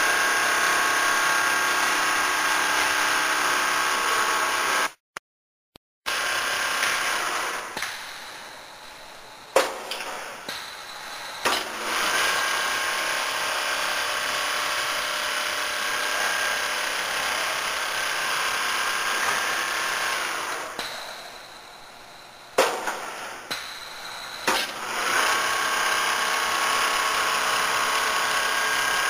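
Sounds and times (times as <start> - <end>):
sharp clack: 7.7 - 8.2, 22.6 - 24.8
quilting machine sewing: 24.7 - 29.0.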